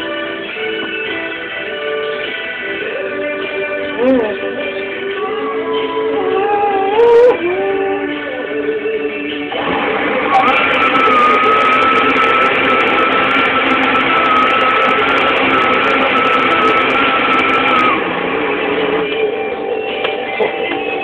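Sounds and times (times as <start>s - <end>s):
blender motor whining: 9.5s - 19.2s.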